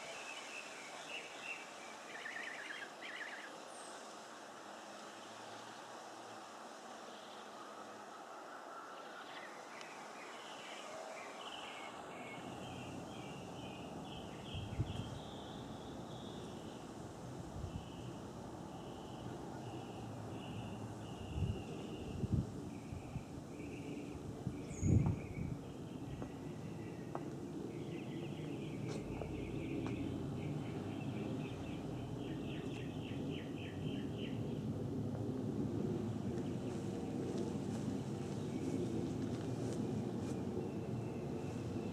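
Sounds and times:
mockingbird singing: 1.0 - 3.5
low rumbling on microphone: 24.3 - 32.7.

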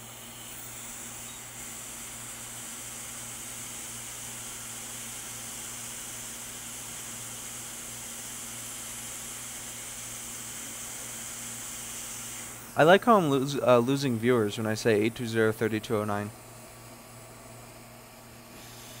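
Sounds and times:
low electrical hum: 0.0 - 19.0
air blowing hiss: 10.5 - 15.4, 18.5 - 19.0.

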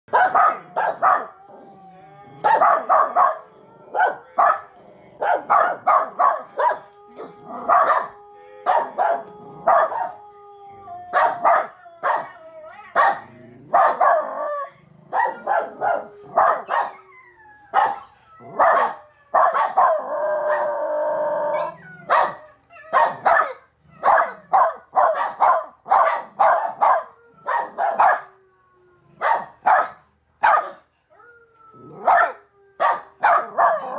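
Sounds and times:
puppy barking: 0.1 - 1.4, 2.4 - 10.2, 11.2 - 12.4, 13.0 - 14.5, 15.1 - 17.0, 17.7 - 20.7, 21.5 - 28.3, 29.2 - 30.9, 31.9 - 33.9
puppy howling: 0.2 - 29.9, 31.2 - 33.9.

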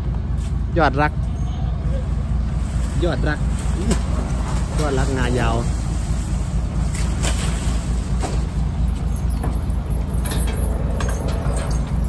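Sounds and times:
truck engine idling: 0.0 - 12.0
metallic chain clinks: 9.0 - 12.0.

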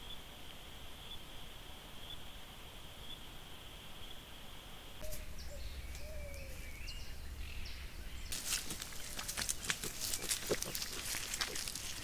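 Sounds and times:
faint wavering calls: 5.0 - 8.0
low outdoor rumble: 5.0 - 12.0
animals rustling in dry leaves: 8.2 - 12.0.

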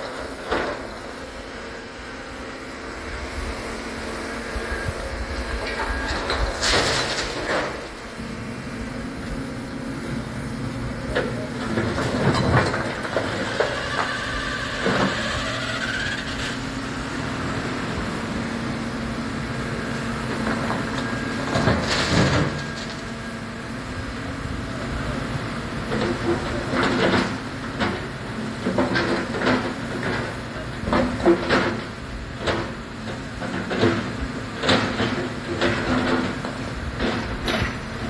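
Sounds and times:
hydraulic whine: 0.0 - 25.6
excavator diesel engine: 0.0 - 38.0.

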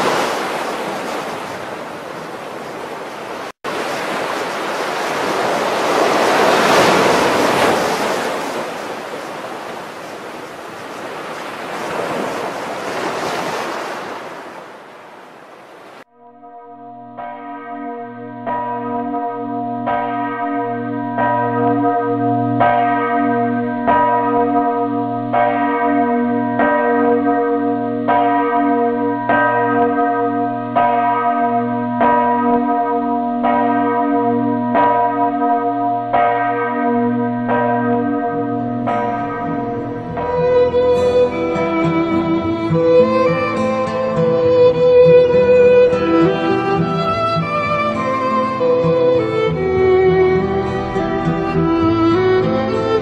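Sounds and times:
church bell tolling: 16.2 - 53.0.

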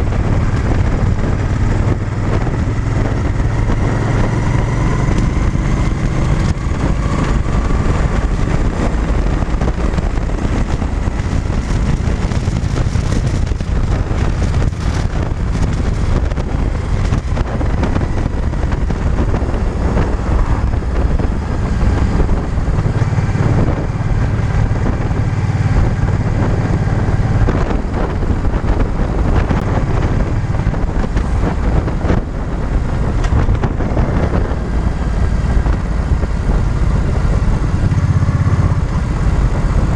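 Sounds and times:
motorcycle engine running: 0.0 - 39.9
wind noise on microphone: 0.0 - 39.9.

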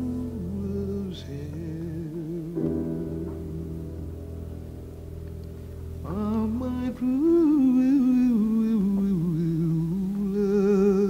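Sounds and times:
sustained held chord: 0.0 - 8.5.

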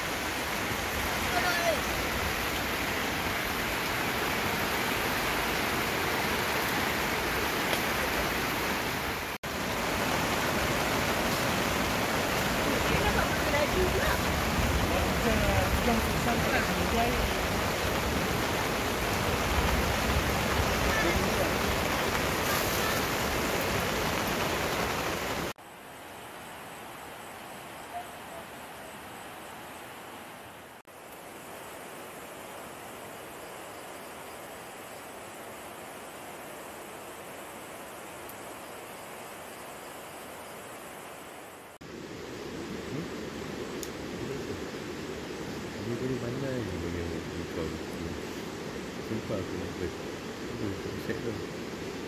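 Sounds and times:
river rushing over rocks: 0.0 - 25.5
rain hissing: 0.0 - 52.0.

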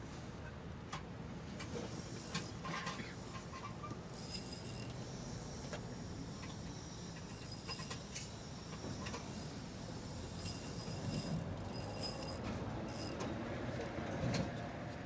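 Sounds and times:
hand tools clinking: 7.2 - 14.0.

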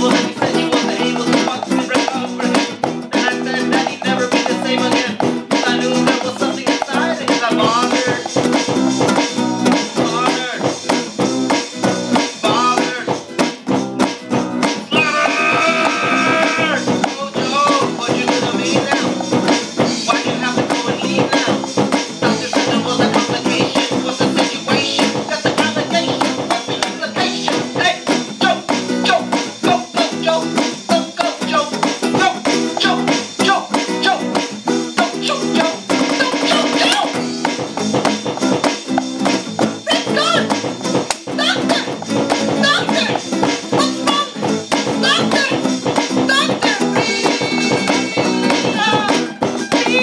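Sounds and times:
person singing into a microphone: 0.0 - 8.4, 12.4 - 13.3, 14.9 - 19.2, 19.8 - 34.3, 42.6 - 44.4, 46.2 - 50.0
strummed guitar: 0.0 - 50.0.

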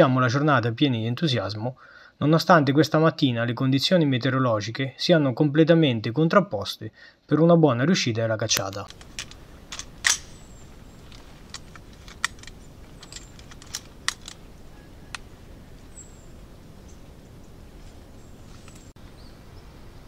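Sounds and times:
light rain: 8.9 - 20.0.

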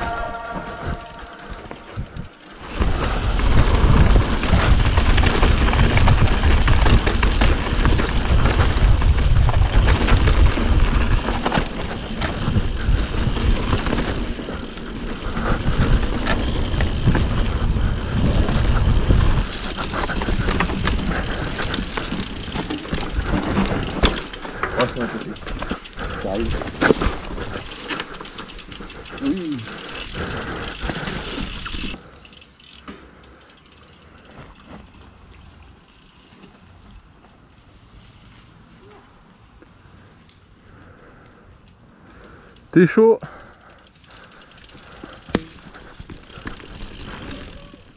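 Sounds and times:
wind buffeting microphone: 0.0 - 24.1
tyres on dirt: 0.0 - 39.9, 41.9 - 47.9
bike clattering over rocks: 2.5 - 32.0, 44.5 - 47.9.

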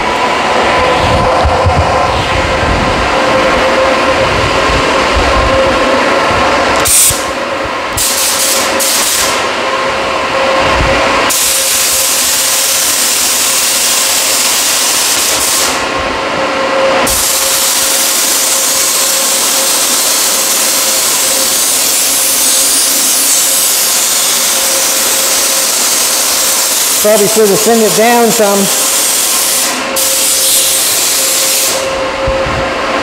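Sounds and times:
steady hum: 0.0 - 33.0
paint spray gun hissing: 8.0 - 9.4, 17.1 - 31.9.

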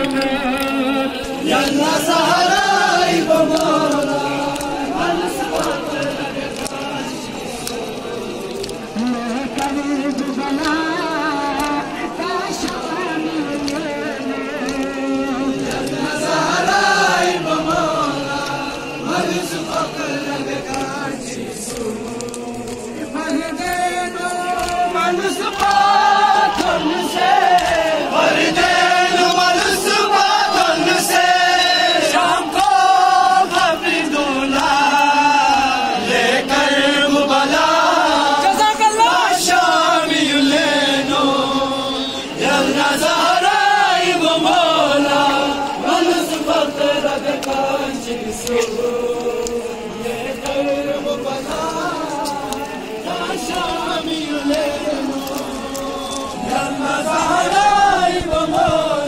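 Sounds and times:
crowd of men chanting: 0.0 - 59.0
hands slapping on chests: 3.2 - 6.8, 9.5 - 11.9, 13.5 - 15.0, 20.6 - 30.7, 47.0 - 49.6.

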